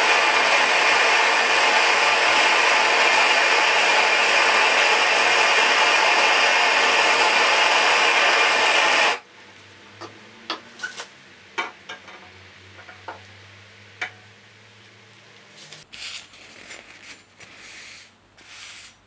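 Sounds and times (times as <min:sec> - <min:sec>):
propane torch burning: 0:00.0 - 0:09.7.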